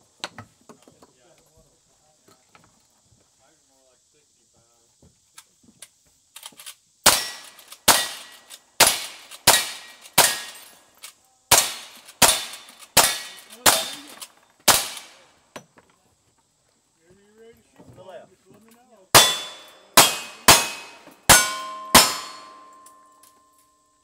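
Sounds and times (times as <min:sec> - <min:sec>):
revolver shots echoing: 0:19.2 - 0:23.0.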